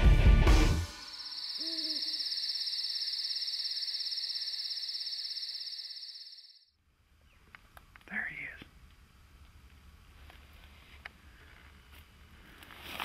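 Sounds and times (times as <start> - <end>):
crickets trilling: 1.0 - 6.6
brief low call: 1.6 - 2.1.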